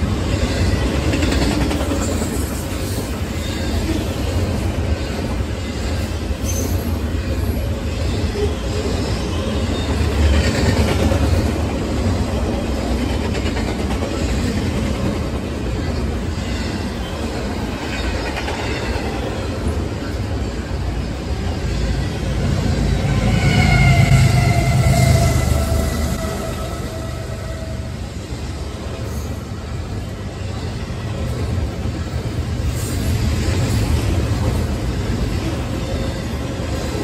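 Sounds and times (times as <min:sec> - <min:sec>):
steel wheels rumbling on rails: 0:00.0 - 0:37.0.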